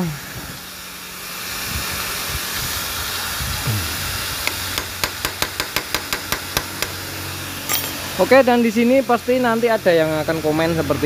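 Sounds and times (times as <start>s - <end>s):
hammer tapping metal chisel: 4.5s - 7.0s.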